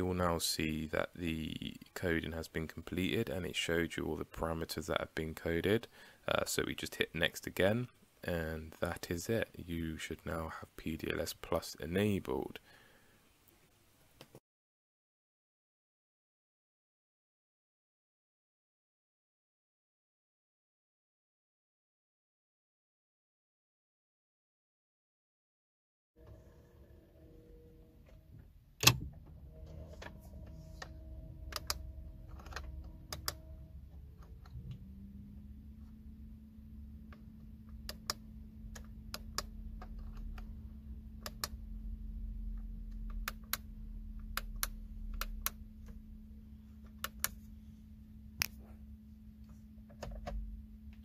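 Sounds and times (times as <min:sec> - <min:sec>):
steady low hum: 0:26.2 - 0:51.0.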